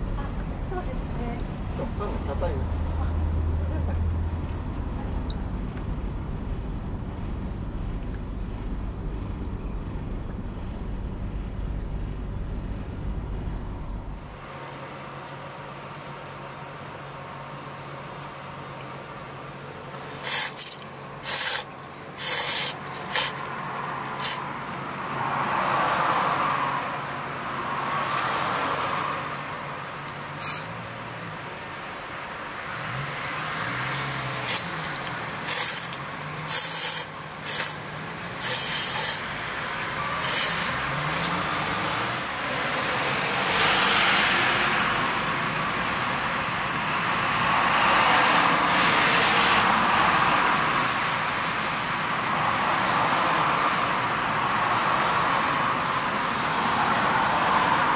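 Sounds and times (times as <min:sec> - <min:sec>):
road traffic passing: 0:00.0 - 0:57.9
person slurping noodles: 0:20.2 - 0:24.4, 0:34.4 - 0:39.3.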